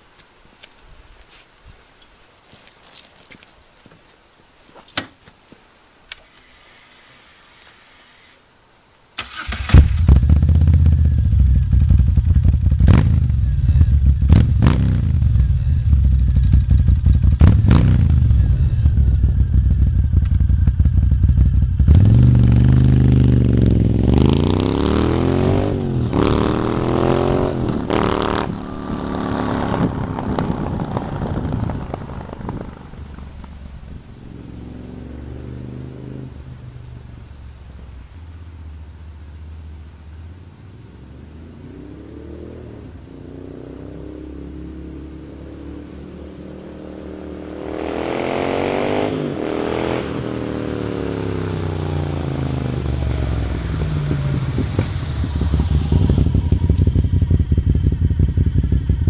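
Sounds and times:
motorcycle accelerating away: 0:09.2 - 0:37.2, 0:40.8 - 0:59.0
motorcycle engine starting and revving: 0:09.2 - 0:37.8, 0:40.9 - 0:59.0.

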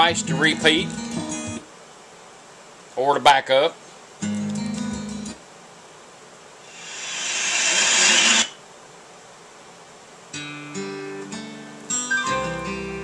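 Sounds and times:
plucked guitar notes: 0:12.1 - 0:13.0.

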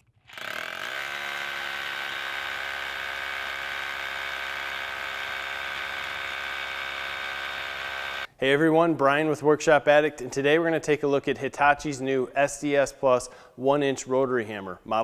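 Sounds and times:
rotary hammer drilling into concrete: 0:00.0 - 0:08.3.

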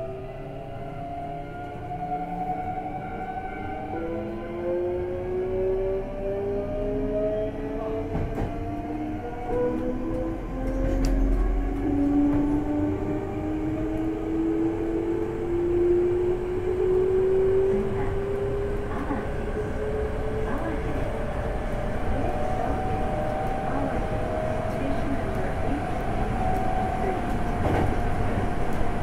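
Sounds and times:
electric train inverter whining: 0:00.0 - 0:29.0
train running noise: 0:07.5 - 0:29.0.

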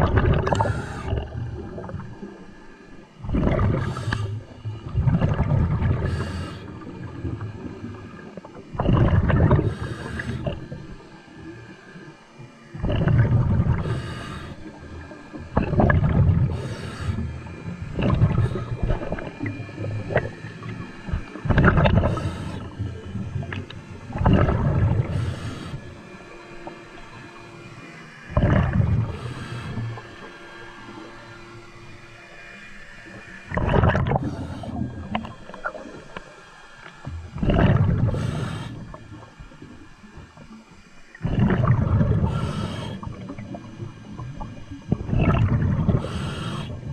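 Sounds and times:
exhaled bubbles gurgling: 0:00.0 - 0:32.0, 0:32.9 - 0:46.9
regulator inhalation hiss: 0:03.8 - 0:04.5, 0:06.0 - 0:08.3, 0:09.6 - 0:11.1, 0:13.8 - 0:15.2, 0:16.5 - 0:21.4, 0:22.0 - 0:24.0, 0:25.0 - 0:27.1, 0:29.0 - 0:31.3, 0:34.2 - 0:36.9, 0:37.9 - 0:39.6, 0:42.2 - 0:44.3, 0:45.9 - 0:46.9.

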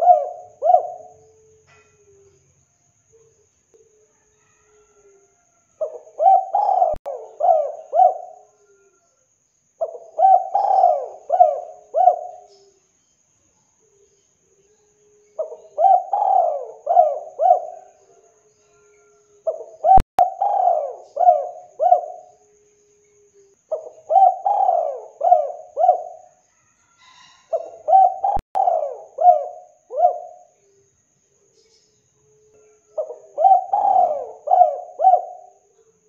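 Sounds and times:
dove cooing: 0:00.0 - 0:02.4, 0:05.8 - 0:09.0, 0:09.8 - 0:12.7, 0:15.2 - 0:26.4, 0:27.0 - 0:30.8, 0:32.3 - 0:35.7.

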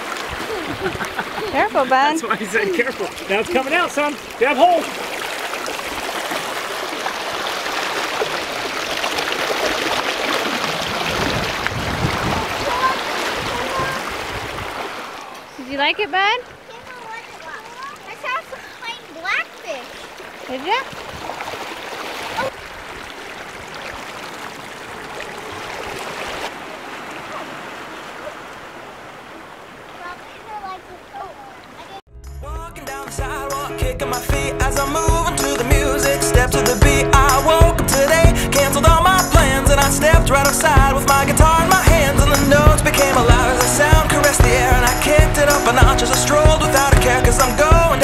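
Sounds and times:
seawater rushing over rocks: 0:00.0 - 0:15.5, 0:16.4 - 0:32.0, 0:37.3 - 0:48.0
small splashes: 0:00.0 - 0:15.6, 0:16.4 - 0:32.0.

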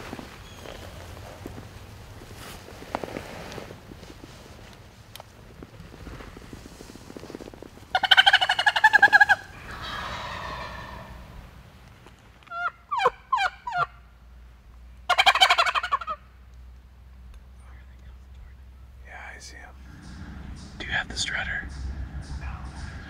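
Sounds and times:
turkey gobbling: 0:07.9 - 0:11.6, 0:12.5 - 0:14.0, 0:15.1 - 0:16.2
turkey yelping: 0:08.0 - 0:11.4, 0:12.5 - 0:14.0, 0:15.1 - 0:16.2.

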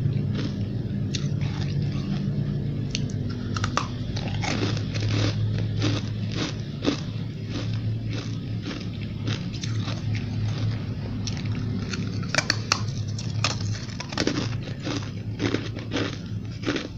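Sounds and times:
low hum: 0:00.0 - 0:16.9
ice crunching being chewed: 0:00.2 - 0:16.9.

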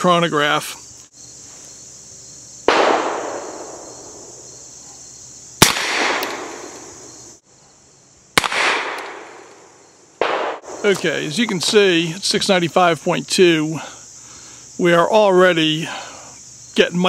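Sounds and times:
revolver shots with echo: 0:02.7 - 0:04.4, 0:05.6 - 0:07.1, 0:08.4 - 0:09.4, 0:10.2 - 0:10.8.

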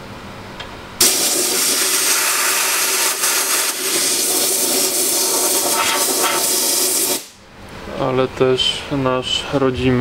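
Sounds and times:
compressed air blow gun hissing: 0:01.0 - 0:07.4.

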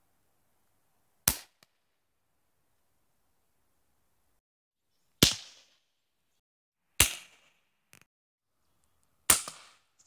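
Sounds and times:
pellet gun firing: 0:05.2 - 0:05.8, 0:07.0 - 0:07.6, 0:09.3 - 0:09.8.

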